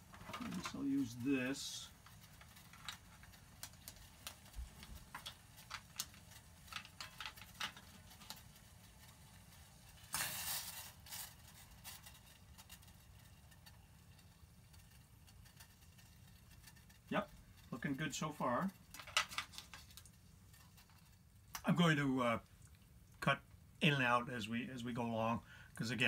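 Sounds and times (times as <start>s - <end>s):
ice cubes clicking in a pan: 0.1s - 21.8s
short sizzle: 8.2s - 19.0s.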